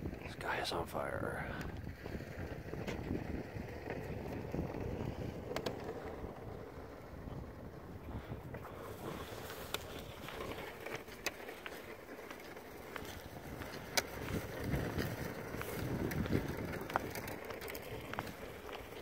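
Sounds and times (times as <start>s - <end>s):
boots walking on ice: 8.7s - 19.0s
sharp clicks on ice: 8.8s - 19.0s.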